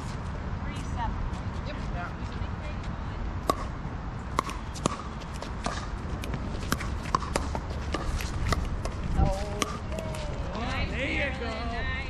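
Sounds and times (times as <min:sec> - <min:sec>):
ball bouncing on court: 0:03.4 - 0:03.7, 0:04.3 - 0:10.3.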